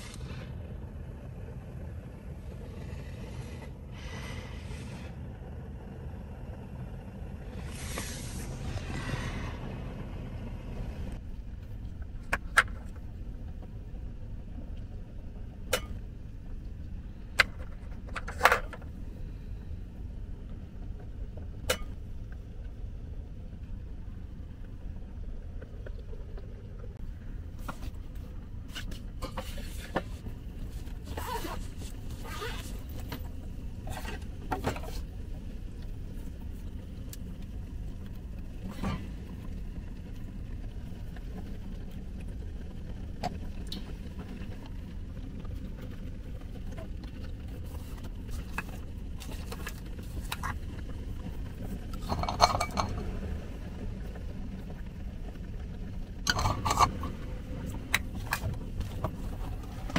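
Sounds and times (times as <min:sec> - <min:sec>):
steady low rumble: 0:00.0 - 0:59.9
small bottles clinking: 0:52.0 - 0:53.0, 0:56.3 - 0:57.1.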